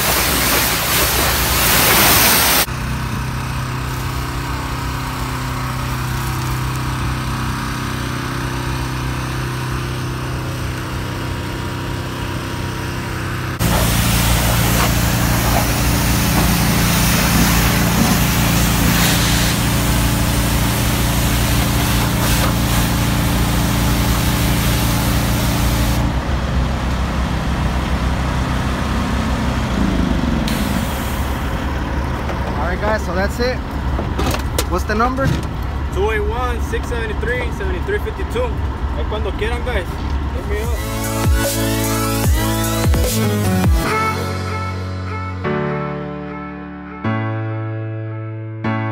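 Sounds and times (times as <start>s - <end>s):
pressure washer spraying: 0.0s - 2.7s, 13.6s - 26.1s, 30.5s - 31.6s, 40.6s - 44.2s
engine running: 0.0s - 45.5s.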